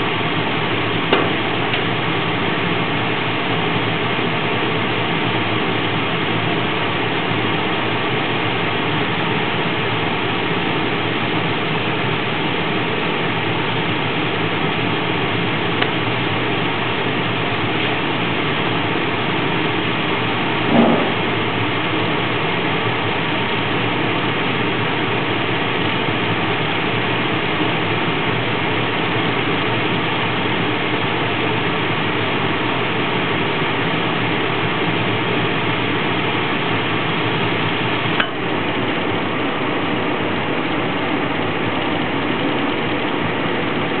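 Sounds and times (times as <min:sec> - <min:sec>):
furnace burner and blower rush: 0:00.0 - 0:44.0.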